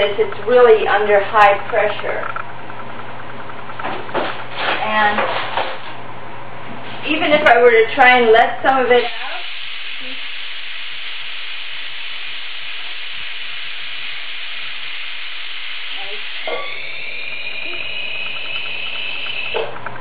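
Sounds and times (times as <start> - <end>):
steam venting hiss: 7.0 - 19.8.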